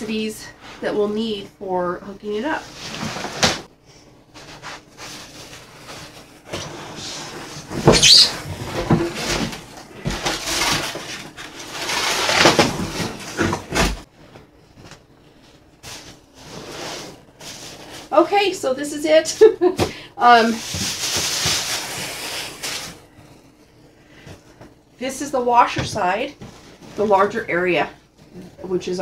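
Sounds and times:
cardboard box scraping and rustling: 4.5s - 14.1s.

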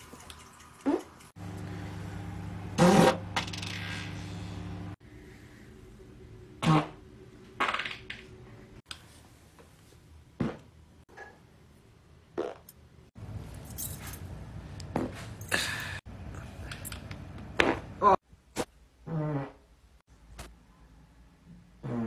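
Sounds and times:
steady low hum: 1.4s - 7.6s
short farts: 2.8s - 4.2s, 6.6s - 7.0s, 12.4s - 12.7s, 19.1s - 19.7s, 21.8s - 22.0s.

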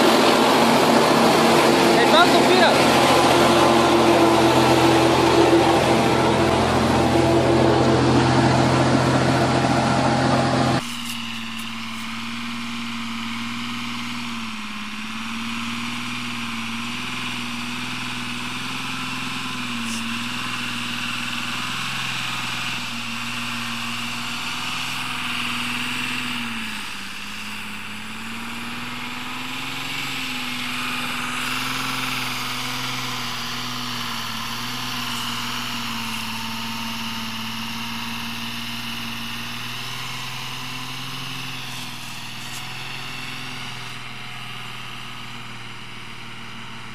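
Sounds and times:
truck engine labouring uphill: 0.0s - 46.9s.

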